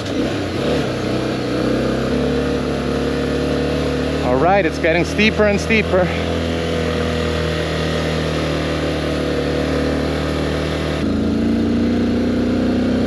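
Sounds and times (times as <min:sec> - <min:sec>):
motorcycle engine under load: 0:00.0 - 0:13.0.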